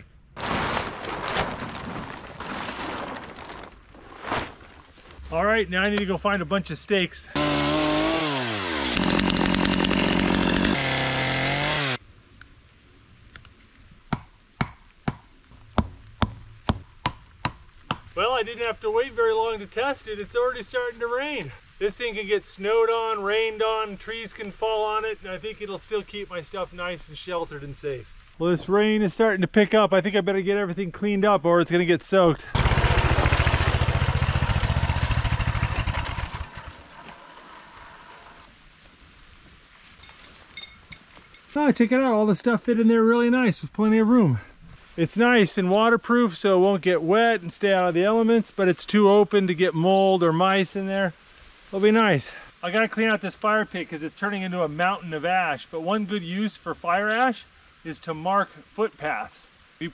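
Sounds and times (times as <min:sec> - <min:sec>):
chainsaw cutting wood: 0:07.4 - 0:12.0, 0:32.6 - 0:38.5
minibike engine idling: 0:32.6 - 0:38.4.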